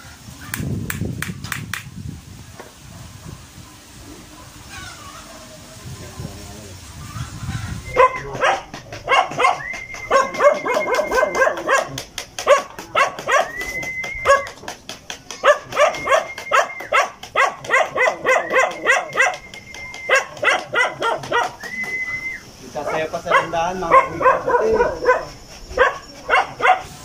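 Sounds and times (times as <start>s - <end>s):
dog barking rapidly: 7.9s - 14.6s, 15.3s - 19.4s, 20.1s - 21.6s, 22.8s - 27.0s.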